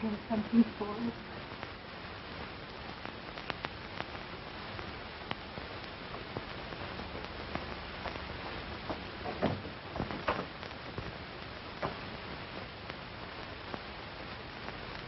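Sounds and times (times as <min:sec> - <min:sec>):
old film soundtrack hiss: 0:00.0 - 0:15.0
clicks and pops: 0:02.8 - 0:11.2.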